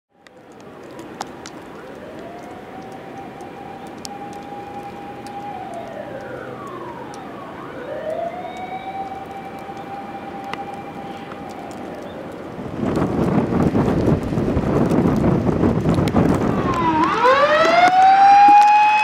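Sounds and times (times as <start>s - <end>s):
rush of wind: 0.2s - 19.0s
overhead wires whistling: 1.8s - 12.3s, 16.5s - 19.0s.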